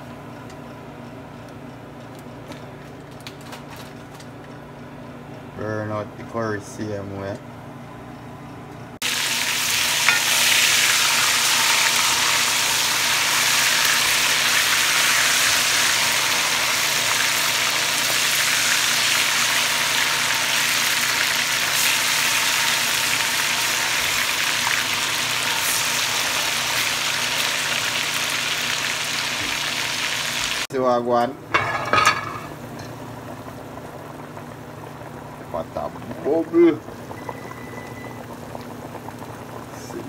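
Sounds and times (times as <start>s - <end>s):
chicken wings sizzling in hot oil: 9.0s - 30.7s.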